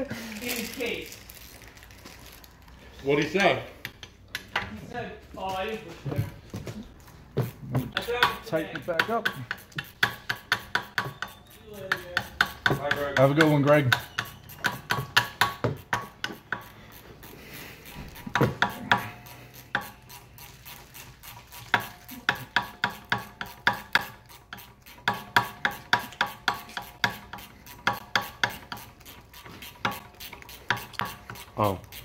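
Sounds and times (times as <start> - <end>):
wrench clicking on metal bolt: 21.7 - 28.9.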